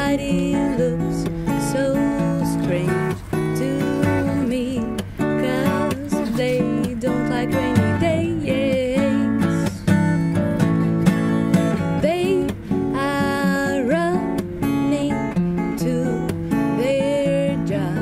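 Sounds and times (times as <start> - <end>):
person singing: 0.0 - 10.4, 12.0 - 18.0
acoustic guitar strumming: 0.0 - 18.0.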